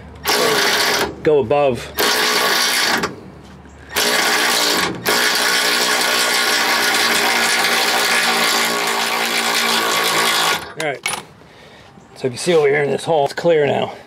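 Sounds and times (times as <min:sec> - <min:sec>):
power tool buzzing whine: 0:00.2 - 0:01.2, 0:02.0 - 0:03.2, 0:03.8 - 0:10.8.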